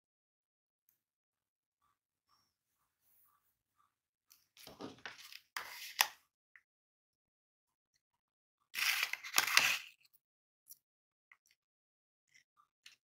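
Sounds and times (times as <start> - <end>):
paper packet crinkling: 8.8 - 9.9.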